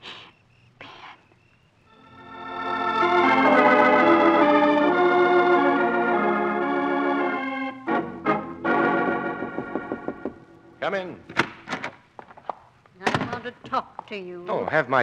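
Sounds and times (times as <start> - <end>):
sustained keyboard chords: 1.9 - 11.2.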